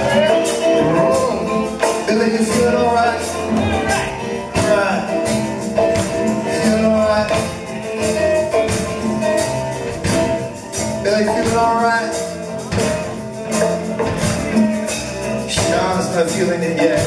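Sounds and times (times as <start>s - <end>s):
live band playing: 0.0s - 17.0s.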